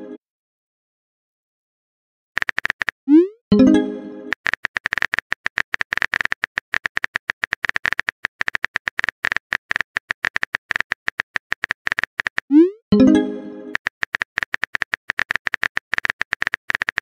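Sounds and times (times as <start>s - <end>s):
phone keyboard taps: 4.3s - 12.5s, 13.8s - 17.0s.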